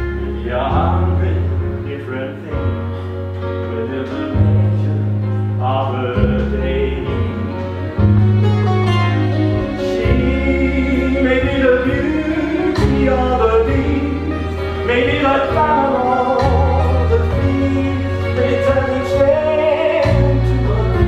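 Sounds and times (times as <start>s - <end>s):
man singing with vibrato: 3.7s - 8.0s, 9.7s - 21.0s.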